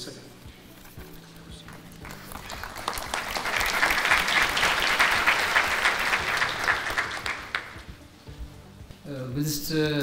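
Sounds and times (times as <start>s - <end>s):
audience applauding: 1.7s - 7.9s.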